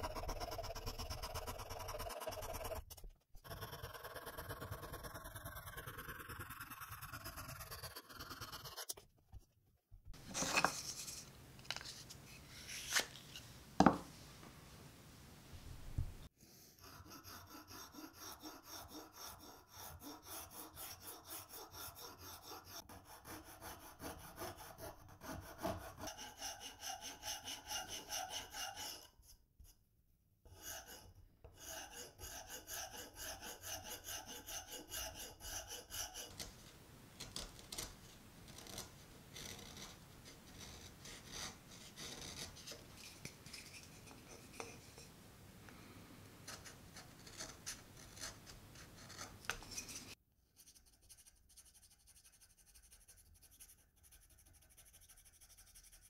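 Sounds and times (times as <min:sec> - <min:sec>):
file rasping on wood: 0:00.0 - 0:08.9, 0:16.5 - 0:29.2, 0:30.5 - 0:36.5, 0:40.5 - 0:42.8.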